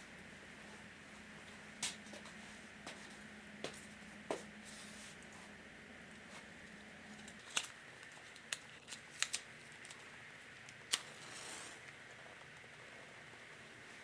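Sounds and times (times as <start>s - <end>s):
soft gas hiss: 10.0s - 14.0s.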